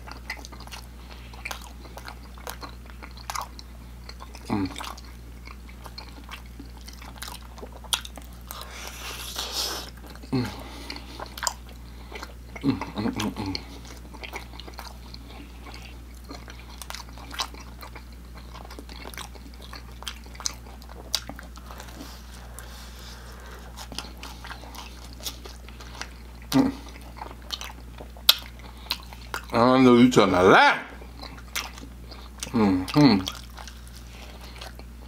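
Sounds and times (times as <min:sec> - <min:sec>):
person chewing food: 0:00.0 - 0:29.6, 0:30.9 - 0:35.0
wet mouth clicks and smacks: 0:27.5 - 0:29.5.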